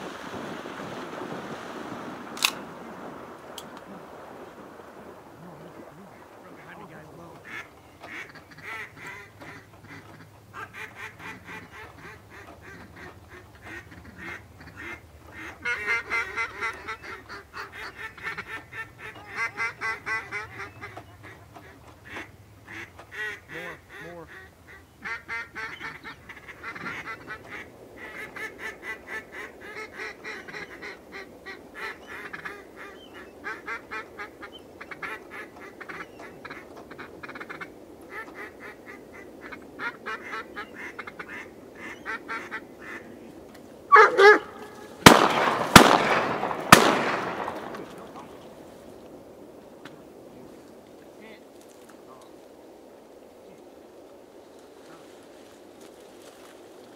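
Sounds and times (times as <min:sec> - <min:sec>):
geese honking: 0:00.0 - 0:49.1
ducks quacking: 0:02.4 - 0:49.1.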